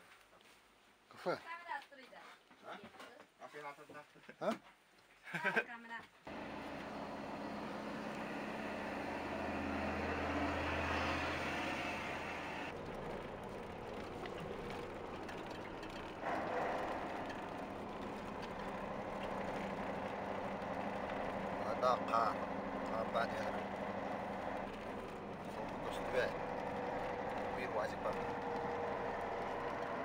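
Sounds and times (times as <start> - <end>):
passing truck rumble: 6.3 - 30.0
truck engine running: 6.3 - 30.0
tyre and road noise: 6.3 - 30.0.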